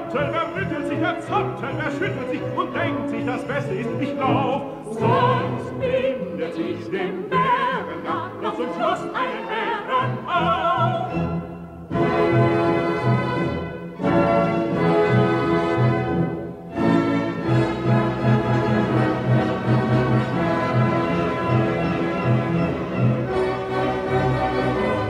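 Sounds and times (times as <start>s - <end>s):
operetta singing with vibrato: 0.0s - 11.6s
orchestral accompaniment: 0.0s - 25.0s.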